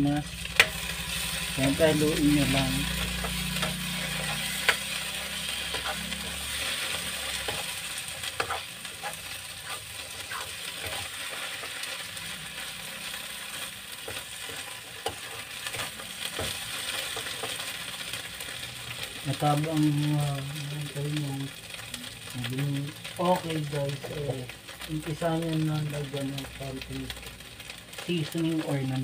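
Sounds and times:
fish sizzling in a frying pan: 0:00.0 - 0:29.0
metal spatula scraping a pan: 0:00.4 - 0:19.0.

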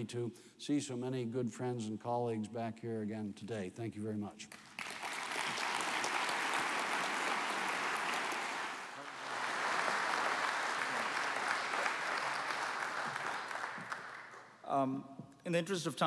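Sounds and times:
audience applauding: 0:04.5 - 0:14.6.

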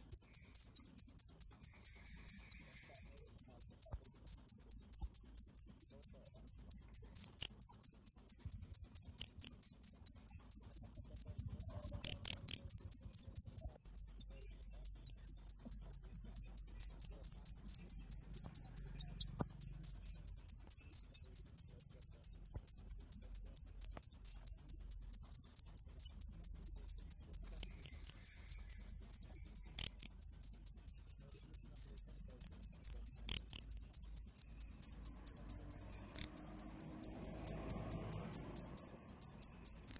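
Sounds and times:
cricket chirping: 0:00.0 - 0:39.9.

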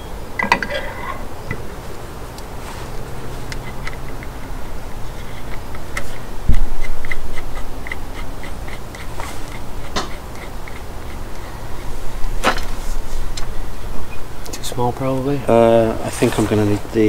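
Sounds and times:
faint regular ticking: 0:02.3 - 0:12.4.

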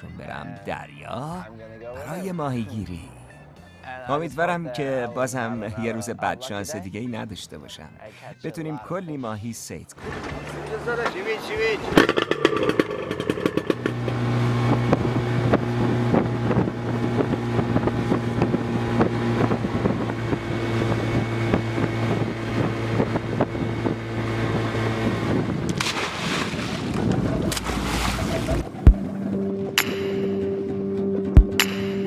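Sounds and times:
outboard motor running: 0:10.0 - 0:29.7
water splashing: 0:25.7 - 0:29.0.

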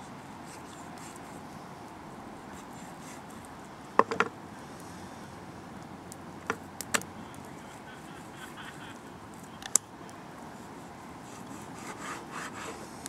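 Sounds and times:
steady background hiss: 0:00.0 - 0:13.0
knife knocking on cutting board: 0:04.0 - 0:04.3.

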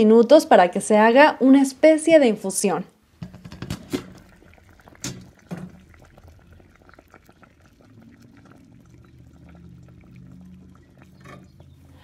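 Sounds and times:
low steady hum: 0:03.0 - 0:12.0
boiling water bubbles popping: 0:03.2 - 0:12.0.

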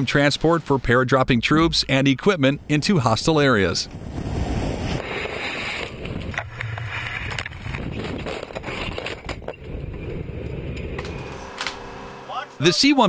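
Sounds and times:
wind noise: 0:02.5 - 0:11.5
aircraft engine noise: 0:05.0 - 0:13.0.

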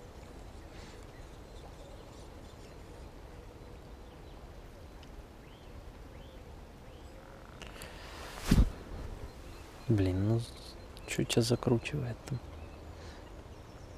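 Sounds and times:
faint outdoor ambience: 0:00.0 - 0:13.9
chirping bird calls: 0:00.5 - 0:13.9
wind rumbling on microphone: 0:08.1 - 0:10.7.

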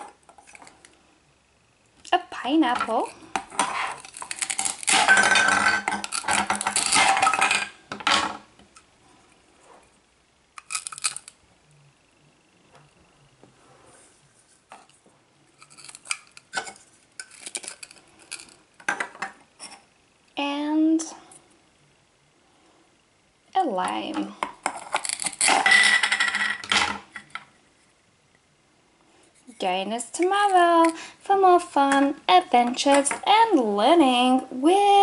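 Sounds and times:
plastic pieces clicking and clacking: 0:03.4 - 0:07.7, 0:10.6 - 0:11.4, 0:15.6 - 0:19.3, 0:24.2 - 0:27.0.

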